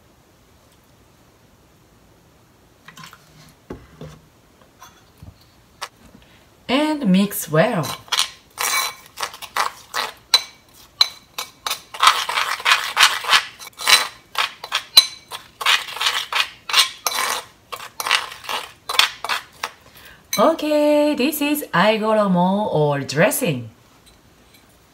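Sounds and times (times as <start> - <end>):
spoon scraping ceramic mortar: 7.5 - 20.5.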